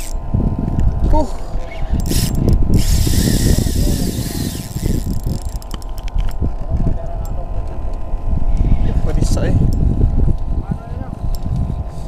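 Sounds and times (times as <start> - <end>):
fishing reel clicks: 0.0 - 0.2, 2.0 - 6.1
reel gears whirring: 0.0 - 0.2, 2.0 - 6.1.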